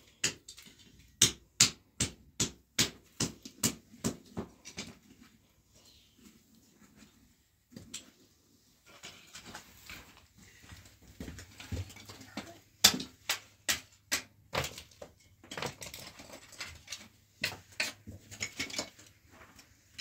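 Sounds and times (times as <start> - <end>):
footsteps on dirt floor: 9.5 - 12.0
wood pieces knocking together: 11.4 - 19.1.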